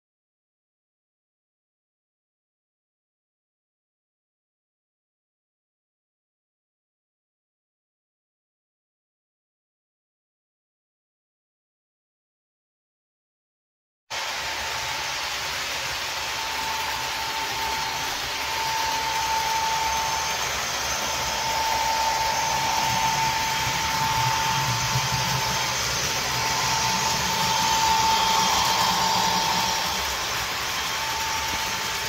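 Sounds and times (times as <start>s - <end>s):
high whine: 14.1s - 32.0s
diesel engine through small speaker: 16.8s - 32.0s.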